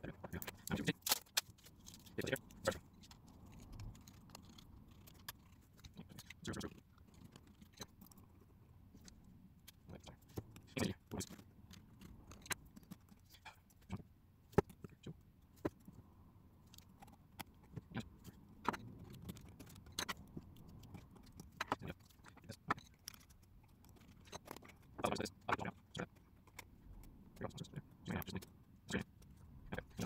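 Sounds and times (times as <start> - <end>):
small screwdriver and screw clicks: 3.0 - 8.0.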